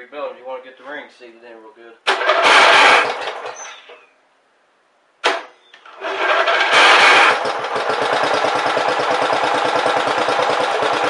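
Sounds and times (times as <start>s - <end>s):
small engine running: 2.1s - 3.5s, 5.9s - 11.0s.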